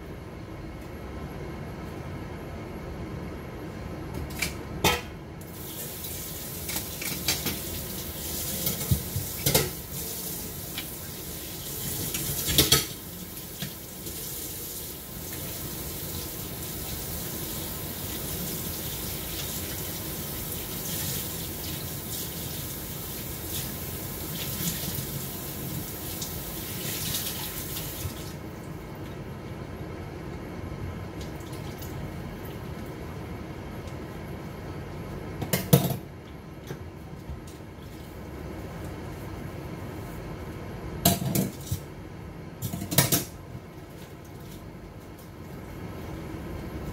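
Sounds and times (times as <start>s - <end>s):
water running from tap: 5.5s - 28.4s.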